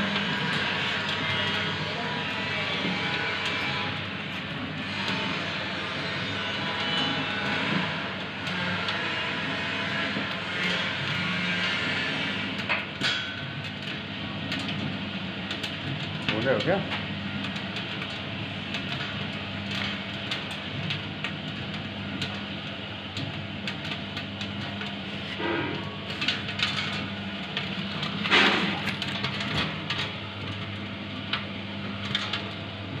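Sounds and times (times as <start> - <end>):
popcorn crackling and popping: 12.4 - 33.0.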